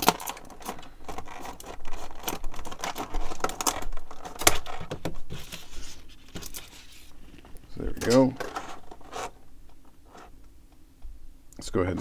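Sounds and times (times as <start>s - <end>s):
plastic snapping: 0.0s - 5.2s
plastic blister pack crackling: 0.0s - 9.4s.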